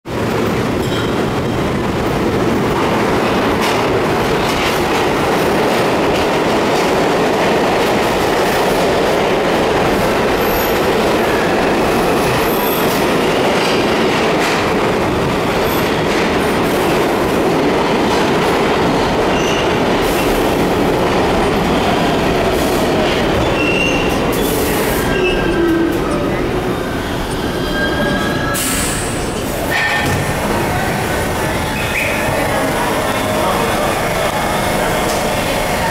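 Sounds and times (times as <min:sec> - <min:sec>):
train wheels rumbling on rails: 0:00.1 - 0:35.9
high wheel squeals: 0:27.0 - 0:30.1.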